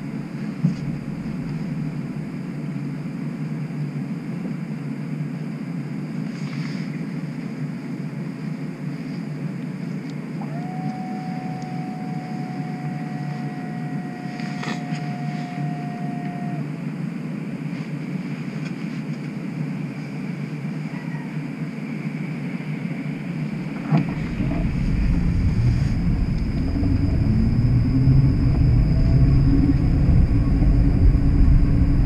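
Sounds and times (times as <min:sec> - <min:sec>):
streetcar interior hum: 0:00.0 - 0:32.0
steady high tone: 0:10.4 - 0:16.8, 0:23.5 - 0:32.0.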